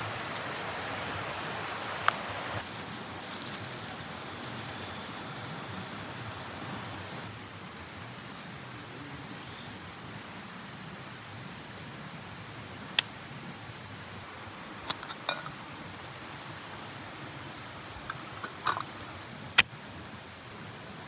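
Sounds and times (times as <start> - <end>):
steady hiss: 0.0 - 21.0
metal pot lid clinking: 14.9 - 15.6.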